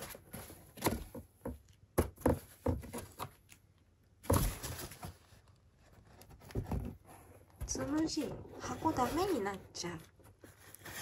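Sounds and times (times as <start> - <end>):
cardboard box rustling and scraping: 4.2 - 11.0.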